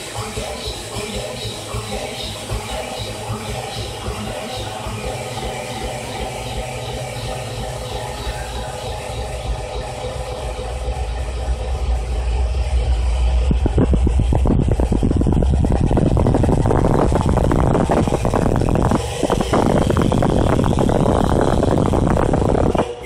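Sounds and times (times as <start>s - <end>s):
loud bass-heavy music: 0.0s - 23.0s.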